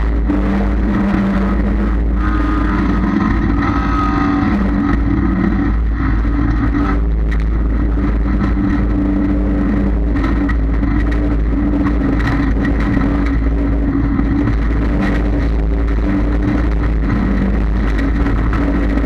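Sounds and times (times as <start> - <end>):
car engine running: 0.0 - 19.0.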